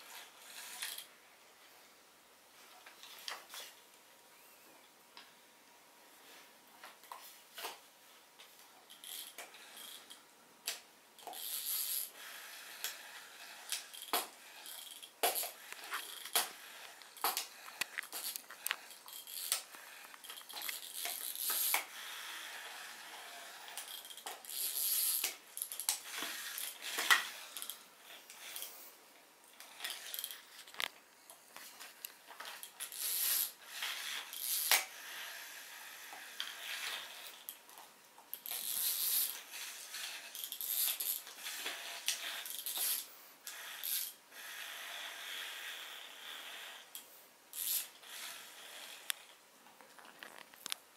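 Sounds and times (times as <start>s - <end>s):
toy wind-up mechanism chattering: 0.1s - 1.1s, 8.9s - 10.2s, 11.2s - 28.7s, 29.6s - 30.9s, 32.4s - 37.6s, 38.3s - 49.3s.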